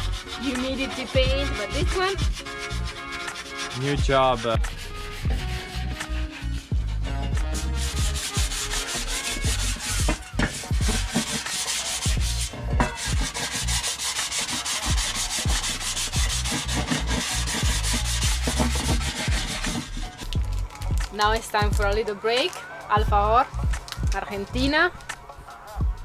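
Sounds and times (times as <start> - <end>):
sponge scrubbing metal: 0.0 - 20.4.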